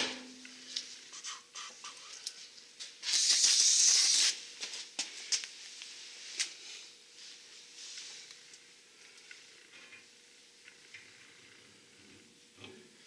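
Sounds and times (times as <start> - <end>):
aerosol spray hissing: 3.0 - 4.4.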